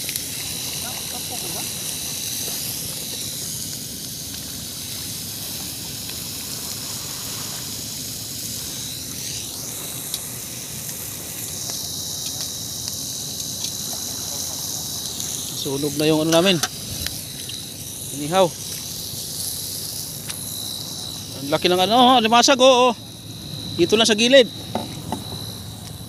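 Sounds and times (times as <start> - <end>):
fish sizzling on a grill pan: 0.0 - 26.0.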